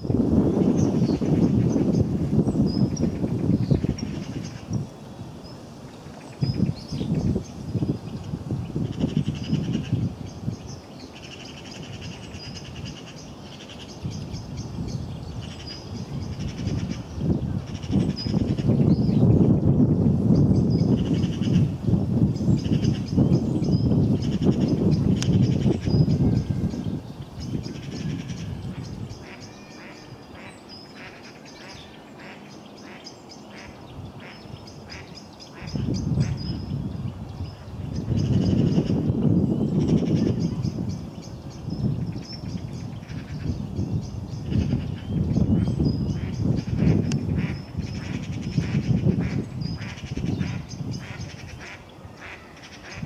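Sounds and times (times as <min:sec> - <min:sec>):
small birds chirping: 0:00.0 - 0:53.0
songbirds trilling: 0:00.0 - 0:53.0
waterbird quacking calls: 0:27.8 - 0:36.5, 0:46.1 - 0:53.0
gusty low rumble: 0:35.7 - 0:51.6.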